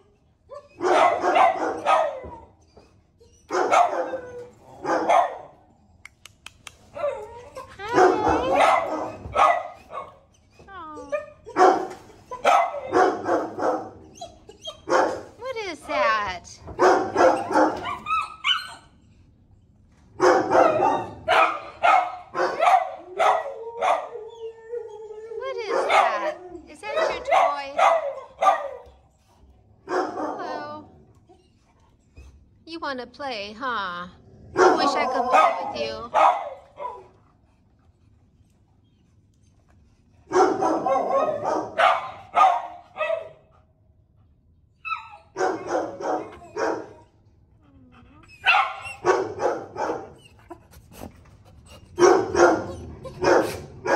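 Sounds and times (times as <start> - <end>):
dog barking: 0.8 - 2.4, 3.5 - 4.2, 4.8 - 5.5, 7.9 - 10.2, 11.5 - 14.0, 14.9 - 15.3, 16.8 - 18.7, 20.2 - 24.1, 25.6 - 26.4, 27.0 - 28.9, 29.9 - 30.8, 34.6 - 37.1, 40.3 - 43.4, 44.9 - 47.0, 48.4 - 50.2, 52.0 - 53.9
dog whining: 1.8 - 4.8, 6.9 - 13.0, 14.0 - 14.9, 17.2 - 19.2, 23.2 - 29.0, 30.4 - 32.4, 34.8 - 36.1, 44.8 - 50.8, 51.6 - 53.7.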